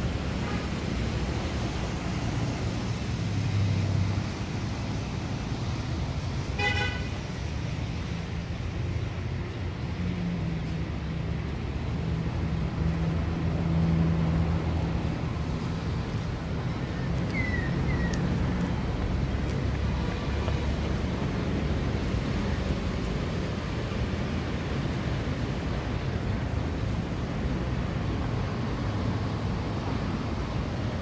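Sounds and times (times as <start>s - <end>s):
road traffic: 0.0s - 31.0s
vehicle horn toot: 6.6s - 7.1s.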